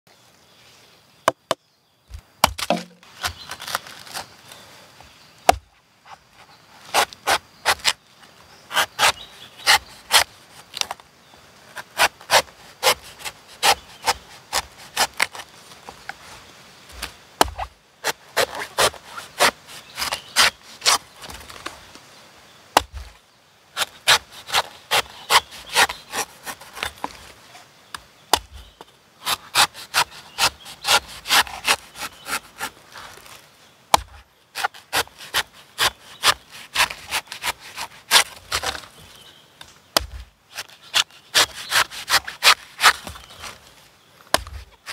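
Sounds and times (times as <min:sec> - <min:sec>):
cleaver slicing coconut husk: 0:01.3 - 0:04.3, 0:05.4 - 0:08.0, 0:08.6 - 0:11.0, 0:11.7 - 0:16.2, 0:16.9 - 0:21.7, 0:22.7 - 0:23.2, 0:23.8 - 0:43.7, 0:44.3 - 0:44.9.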